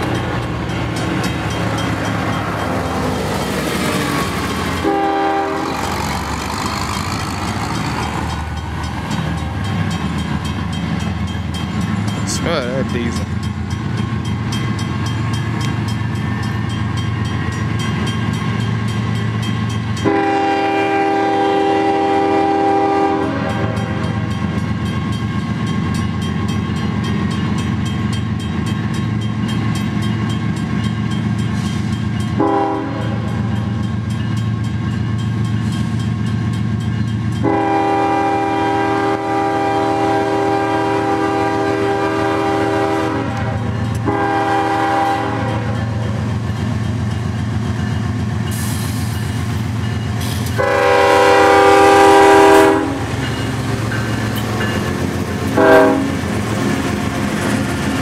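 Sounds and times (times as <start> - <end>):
train wheels on rails: 0.0 - 58.0
locomotive air horn blasts: 4.8 - 5.8, 20.0 - 24.0, 32.4 - 33.4, 37.4 - 45.8, 50.5 - 53.1, 55.6 - 56.2.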